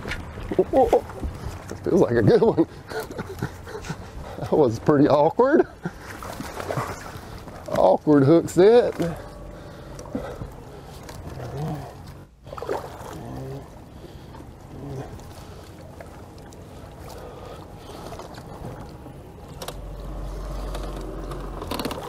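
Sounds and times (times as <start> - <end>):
low hum: 5.8 - 22.0
low rumble: 6.3 - 22.0.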